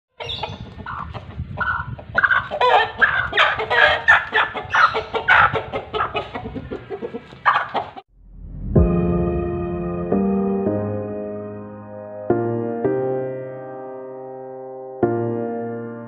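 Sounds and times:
roosters crowing: 0:00.2 - 0:08.0.

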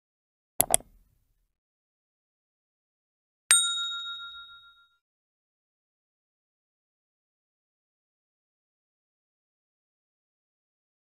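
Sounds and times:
double mouse click: 0:00.6 - 0:01.0
bright bell ding: 0:03.5 - 0:05.0.

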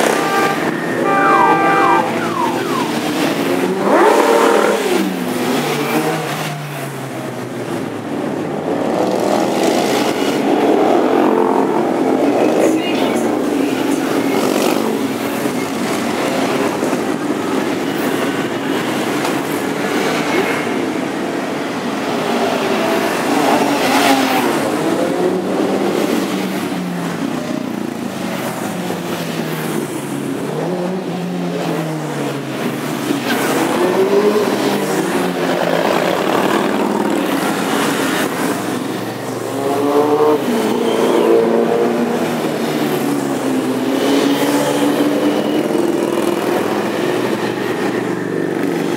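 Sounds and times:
motorcycles riding past: 0:00.0 - 0:05.2.

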